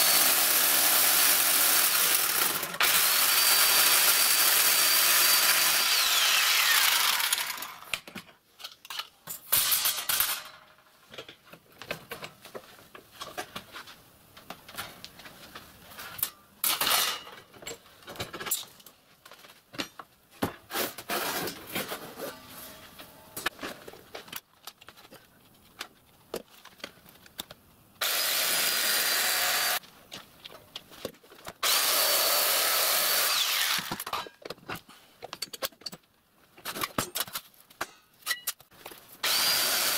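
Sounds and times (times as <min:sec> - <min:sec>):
jigsaw cutting metal sheet: 0:00.0 - 0:07.9, 0:28.0 - 0:29.8, 0:31.6 - 0:34.2, 0:39.2 - 0:39.9.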